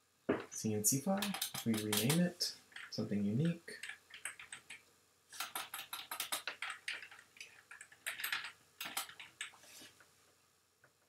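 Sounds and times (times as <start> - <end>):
keyboard key clicks: 1.2 - 2.2, 5.4 - 9.5.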